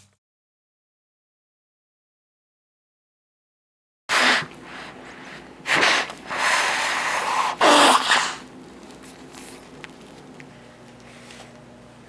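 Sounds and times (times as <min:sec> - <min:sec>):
person blowing nose into tissue: 0:04.1 - 0:08.5.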